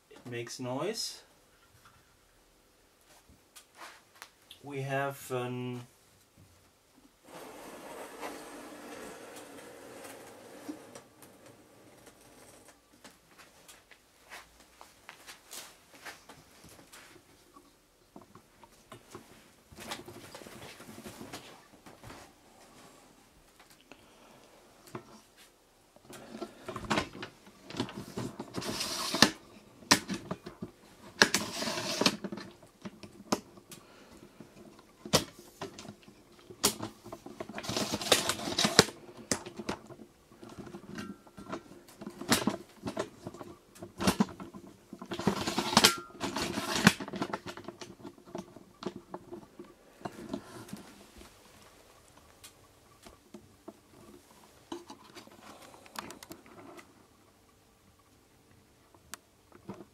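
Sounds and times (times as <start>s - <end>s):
faint steady hum: 0.0s - 59.9s
rustling: 5.8s - 23.9s.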